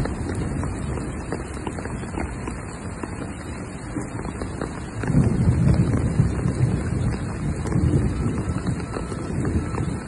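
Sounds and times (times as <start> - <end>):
rain: 0.0 - 10.0
wind buffeting microphone: 0.0 - 10.0.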